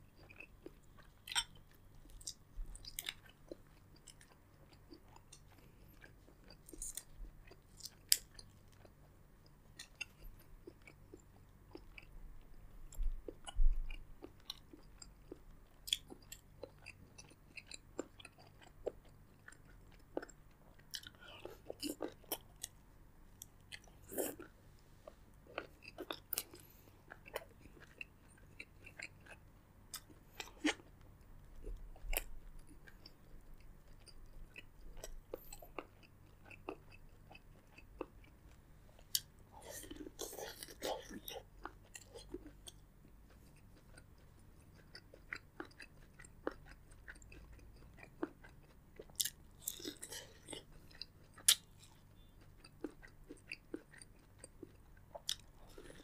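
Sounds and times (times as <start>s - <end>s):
wet chewing: 31.6s - 56.0s.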